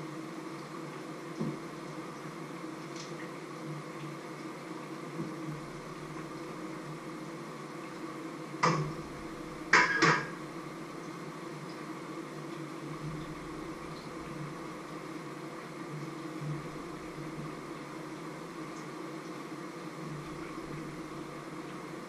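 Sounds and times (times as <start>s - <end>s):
steady low hum: 0.0s - 22.0s
metal kitchenware clanking: 9.8s - 10.4s.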